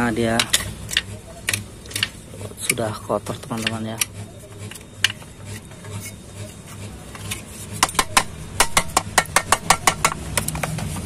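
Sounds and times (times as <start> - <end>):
sharp plastic clicks of fan: 0.3 - 5.2, 7.8 - 11.0.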